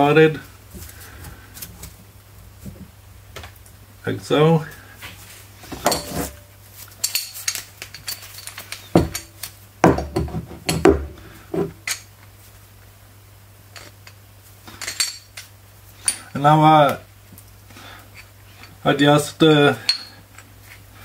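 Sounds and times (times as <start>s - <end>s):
metal tools clinking: 5.8s - 10.9s, 11.8s - 12.1s, 13.7s - 16.4s, 19.7s - 20.4s.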